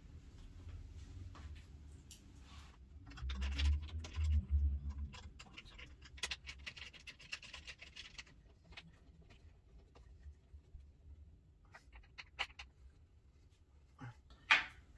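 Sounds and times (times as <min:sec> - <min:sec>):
objects scraping and clicking: 0:02.6 - 0:10.8, 0:11.7 - 0:12.9.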